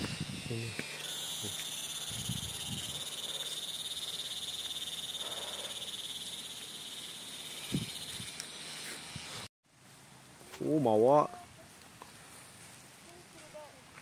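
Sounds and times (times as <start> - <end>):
insects trilling: 0.0 - 9.4.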